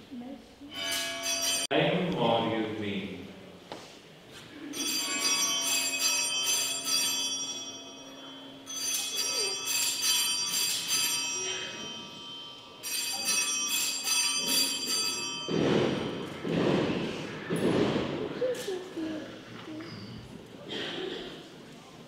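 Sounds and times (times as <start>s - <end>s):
altar bells jangling: 0.7s - 1.7s, 4.7s - 17.6s.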